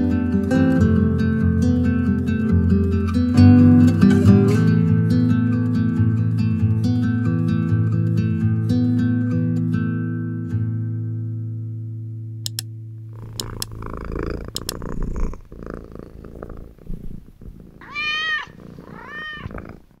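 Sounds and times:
sharp clicks: 12.5s - 15.0s
cat purring: 13.0s - 20.0s
cat meowing: 17.8s - 19.6s.

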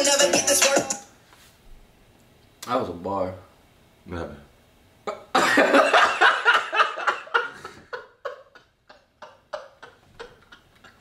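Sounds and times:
men laughing: 5.3s - 11.0s.

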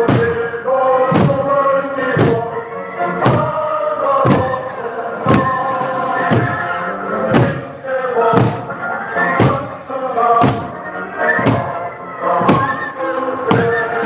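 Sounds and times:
many voices singing: 0.0s - 14.0s
barrel drums struck with sticks: 8.3s - 8.7s.

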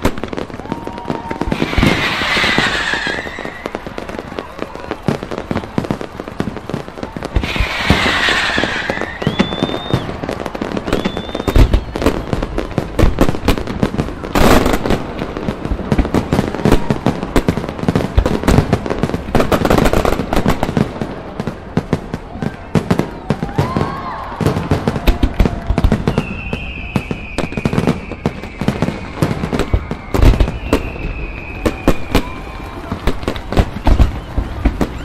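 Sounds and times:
firework shell booms: 0.0s - 4.9s, 7.3s - 12.2s
rising firework whistles: 0.0s - 21.5s, 22.2s - 35.0s
firework crackling: 0.0s - 35.0s.

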